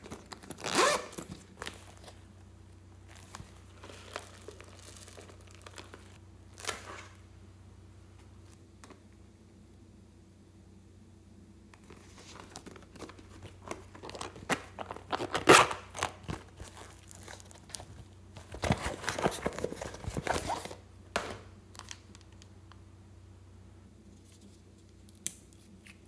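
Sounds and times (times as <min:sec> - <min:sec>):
vinyl crinkling and rustling: 0:00.0 - 0:02.4, 0:03.0 - 0:07.2, 0:11.8 - 0:20.8
zipper pulled open: 0:00.5 - 0:01.4.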